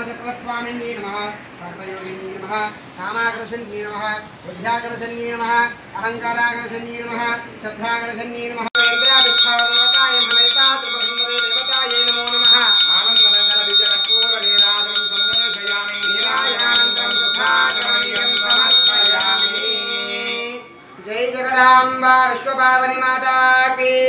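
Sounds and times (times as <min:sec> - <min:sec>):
hand bell ringing rapidly: 0:08.8 - 0:20.7.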